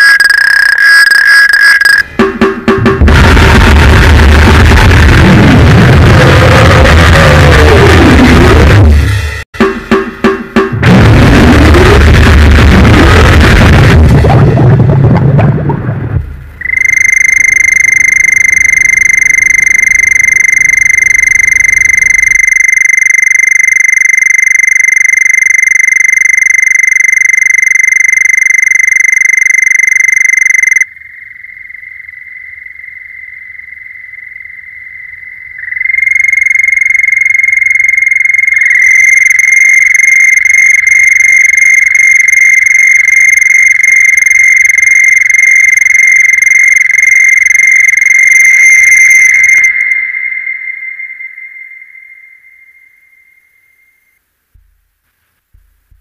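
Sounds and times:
high-pitched frog trill: 0.0 - 2.1, 16.6 - 54.2
low rumble: 2.2 - 9.4, 10.8 - 16.6.

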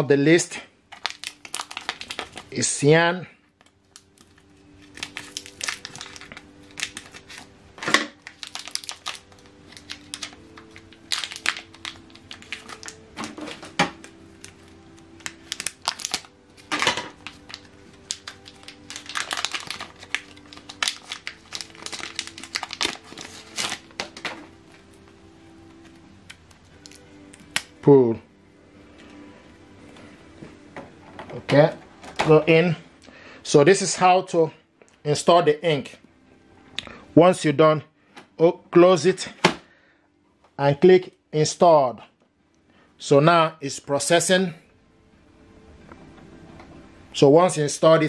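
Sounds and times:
plastic wrapping crinkling: 0.9 - 2.7, 3.5 - 25.1, 25.8 - 27.7.

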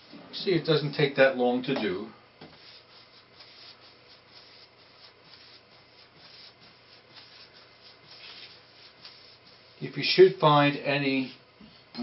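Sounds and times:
paintbrush swishing on wood: 2.5 - 9.9.

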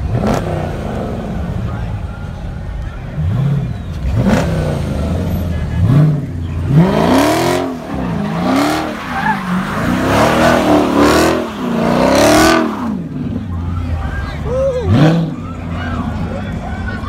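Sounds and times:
car engine revving: 0.0 - 2.0, 2.8 - 17.0.

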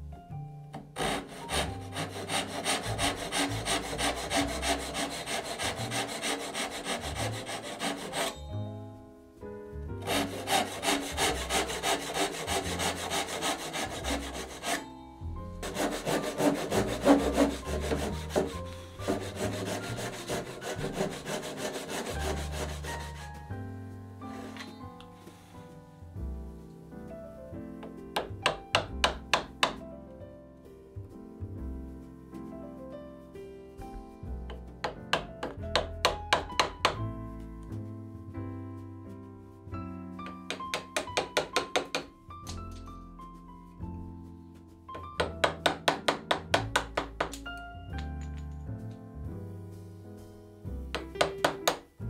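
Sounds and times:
hand saw rasping through wood: 0.8 - 8.4, 10.0 - 14.9, 15.6 - 23.4, 24.3 - 24.7, 28.2 - 29.8, 35.1 - 37.0, 40.3 - 42.1, 45.0 - 47.3.

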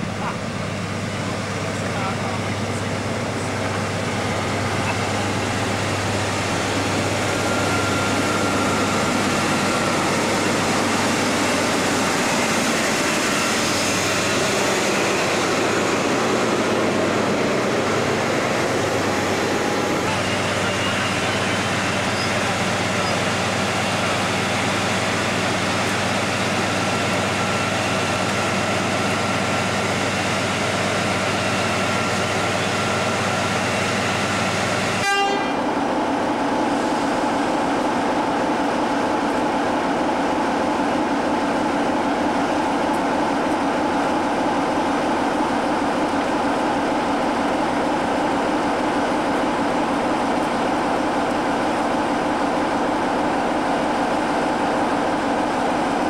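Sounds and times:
diesel locomotive engine idling: 0.0 - 56.0
train horn toot: 35.0 - 35.6.

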